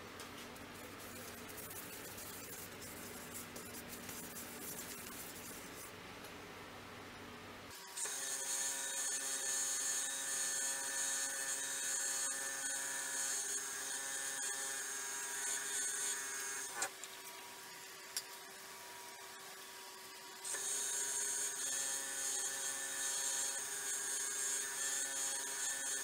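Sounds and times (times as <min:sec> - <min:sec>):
paper towel hissing on spinning bowl: 0:00.8 - 0:05.9.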